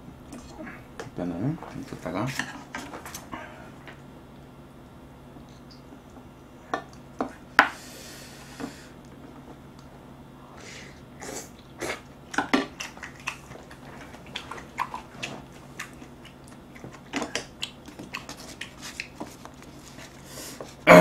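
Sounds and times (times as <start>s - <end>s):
person chewing food: 11.2s - 20.8s.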